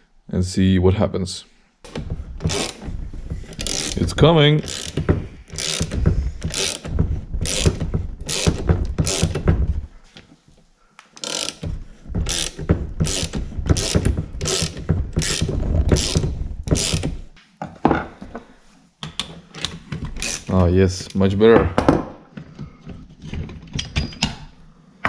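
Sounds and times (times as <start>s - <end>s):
ratchet handle clicking: 3.5s - 4.0s, 4.6s - 9.4s, 11.2s - 16.2s.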